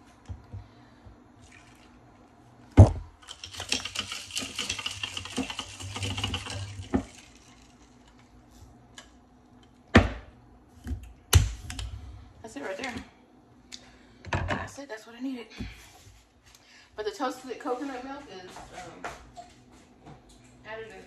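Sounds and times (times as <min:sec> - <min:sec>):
spoon stirring drink in cup: 0:03.2 - 0:07.7.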